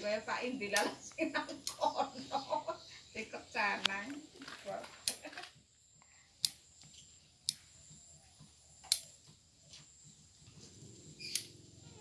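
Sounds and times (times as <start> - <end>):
scissors snipping twigs: 0.6 - 2.0, 4.8 - 5.4, 8.8 - 9.2, 11.2 - 11.6.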